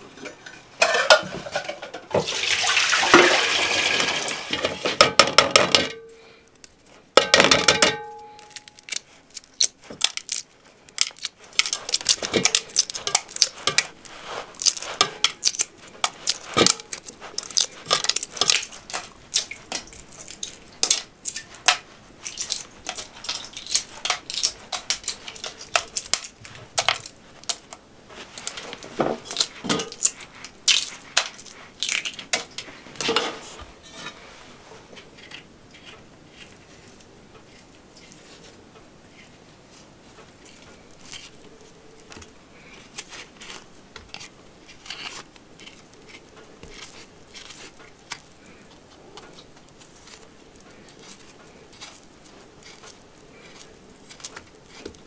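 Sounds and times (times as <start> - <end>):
pots clanking: 0.0 - 6.2, 7.2 - 8.7
water pouring into metal pot: 2.2 - 4.5
eggshells cracking: 6.6 - 32.7, 40.4 - 55.0
pot ringing: 7.2 - 8.8.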